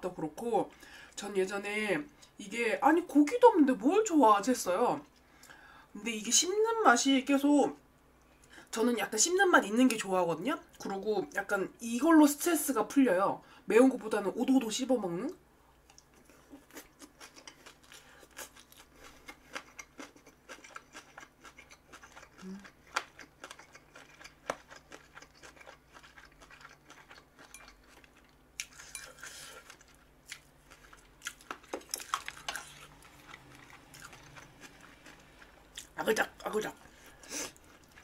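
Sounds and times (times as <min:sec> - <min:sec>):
crunchy chewing: 0:15.9 - 0:36.0.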